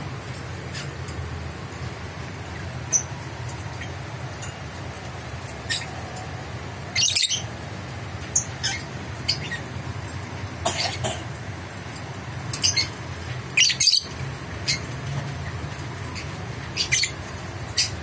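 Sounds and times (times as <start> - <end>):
lovebird chirping and squawking: 2.9 - 3.2, 5.6 - 6.0, 6.9 - 7.5, 8.3 - 9.8, 12.5 - 15.0, 16.0 - 18.0.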